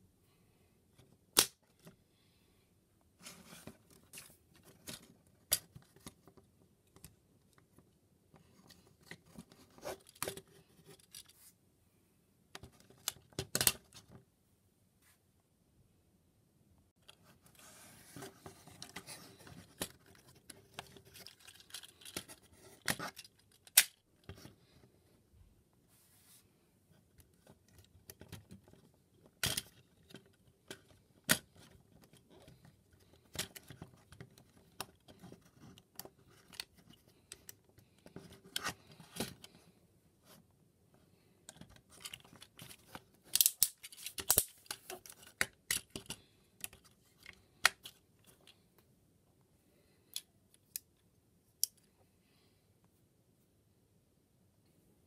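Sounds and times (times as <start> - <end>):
plastic toy clicking and snapping: 21.3 - 24.0, 43.3 - 46.8.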